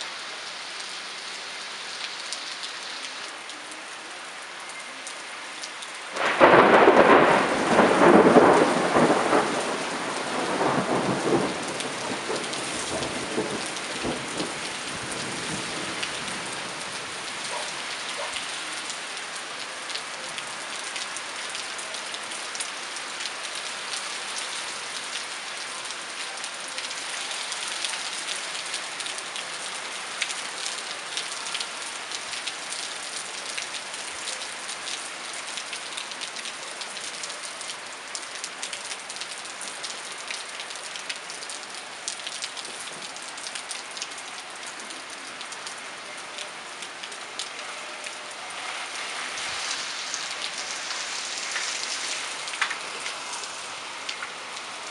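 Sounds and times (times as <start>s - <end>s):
heavy rain pouring: 0.0s - 54.9s
thunder clap rumbling: 6.2s - 15.9s.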